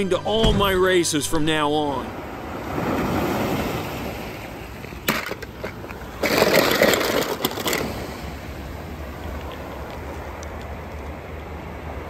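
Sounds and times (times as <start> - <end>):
surf washing on rocky shore: 1.9 - 9.5
toy cars rattling in plastic bucket: 5.1 - 8.2.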